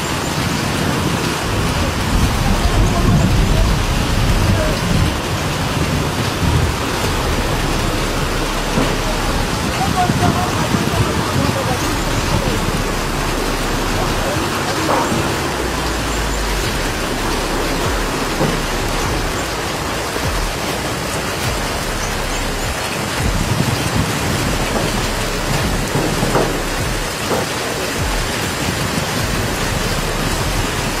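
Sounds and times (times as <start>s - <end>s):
heavy rain on a flooded street: 0.0s - 31.0s.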